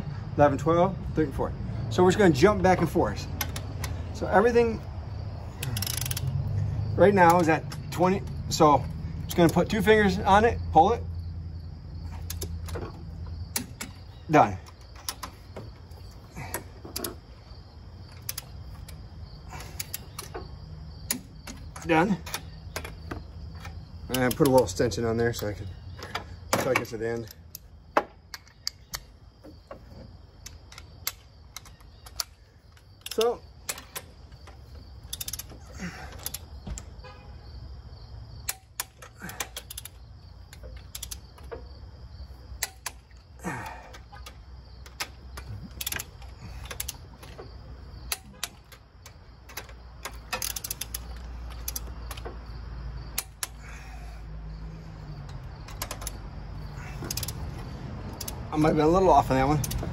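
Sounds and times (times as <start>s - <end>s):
creak under load: 2.4s - 59.9s
torque wrench ratcheting: 5.5s - 6.4s, 30.4s - 36.5s, 49.5s - 52.2s, 56.8s - 59.9s.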